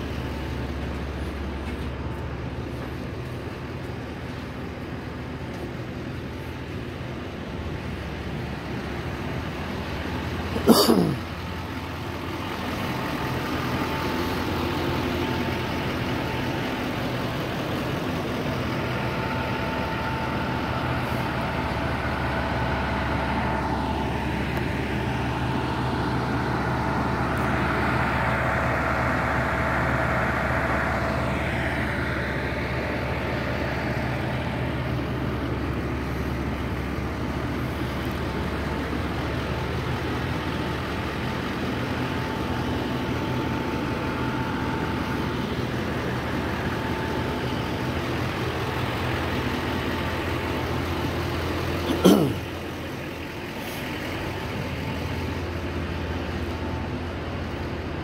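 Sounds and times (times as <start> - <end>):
idling engine hum: 0.0 - 58.0.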